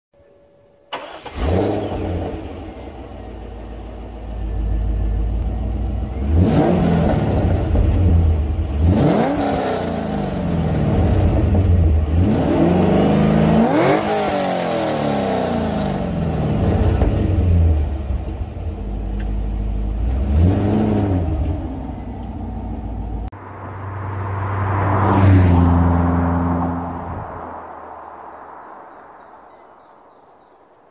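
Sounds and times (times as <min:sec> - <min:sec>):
car engine idling and revving: 0:00.9 - 0:28.8
car engine starting: 0:00.9 - 0:28.8
car driving past: 0:23.3 - 0:29.9.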